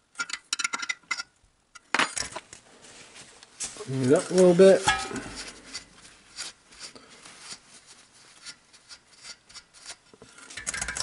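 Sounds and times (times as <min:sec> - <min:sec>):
rubbing and scraping strokes: 0:02.8 - 0:11.0.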